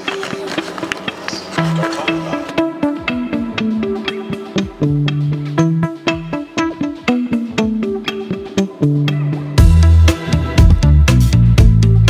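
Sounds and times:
sparse melodic line: 0:01.5 - 0:12.0
drum beat: 0:01.6 - 0:05.2
heavy bass: 0:09.6 - 0:12.0.

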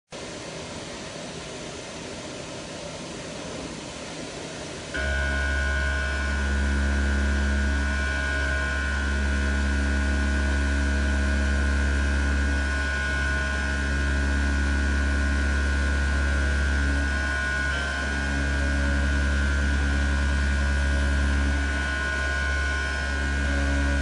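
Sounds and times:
oscillating knife cutter humming: 0:04.8 - 0:24.0.

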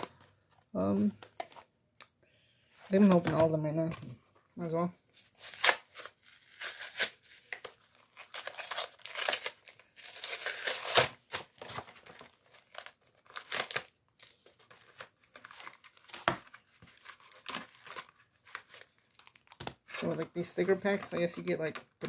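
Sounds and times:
plastic wrapping tearing and crinkling: 0:05.3 - 0:20.1.

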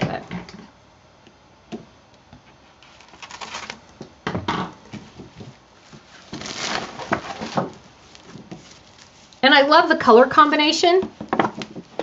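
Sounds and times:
cellophane sleeve crinkling: 0:02.8 - 0:04.0, 0:04.9 - 0:09.9.

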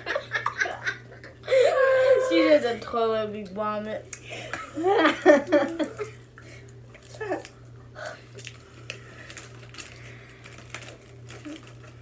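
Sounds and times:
steady low hum: 0:00.0 - 0:12.0
voices: 0:01.5 - 0:03.9.

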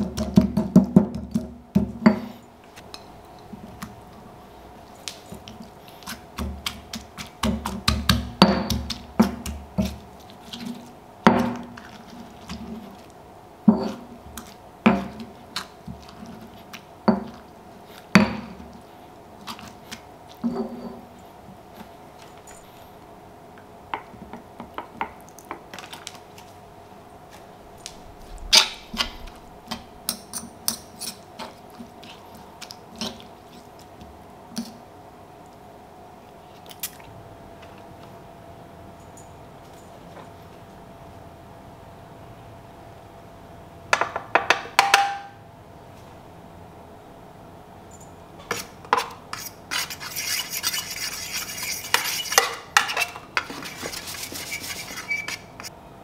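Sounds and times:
stone pestle pounding in mortar: 0:00.0 - 0:02.2, 0:06.4 - 0:10.0.

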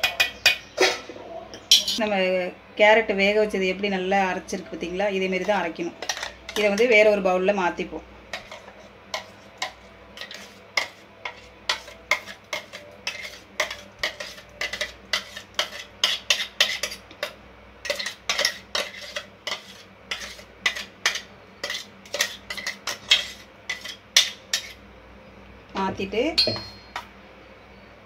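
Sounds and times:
metal spoon scraping metal jar: 0:08.4 - 0:17.0.

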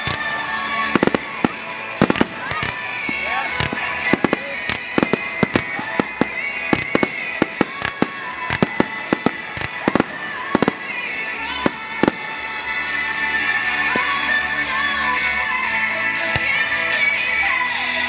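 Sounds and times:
fireworks bursting: 0:00.0 - 0:18.0
music: 0:00.0 - 0:18.0.

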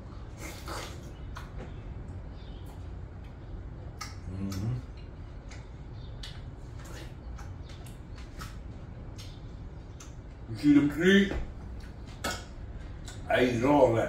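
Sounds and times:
person eating watermelon: 0:00.0 - 0:01.6, 0:02.6 - 0:10.4
low steady hum: 0:00.0 - 0:14.0
person humming: 0:04.3 - 0:04.9.

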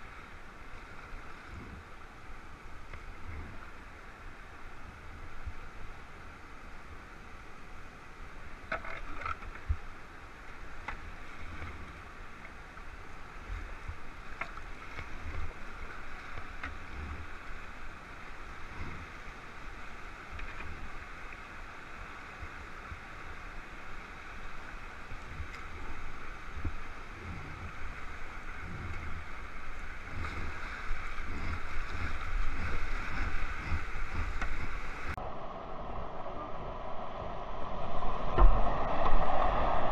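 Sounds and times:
wind buffeting microphone: 0:25.0 - 0:39.9.

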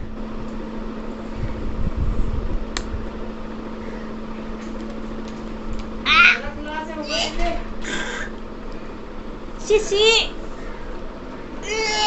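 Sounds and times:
microphone handling noise: 0:00.0 - 0:03.3
steady low hum: 0:00.0 - 0:12.0
sharp click: 0:02.7 - 0:02.9.

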